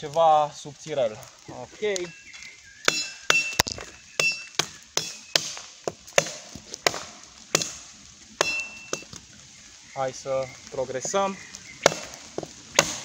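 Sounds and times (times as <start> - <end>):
machete chopping sticks: 2.9 - 7.8, 8.4 - 9.1, 11.8 - 13.0.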